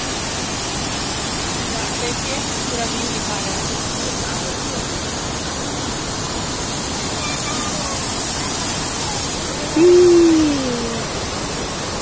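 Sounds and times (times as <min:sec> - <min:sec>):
water rushing over rocks: 0:00.0 - 0:12.0
person calling out: 0:09.7 - 0:11.2.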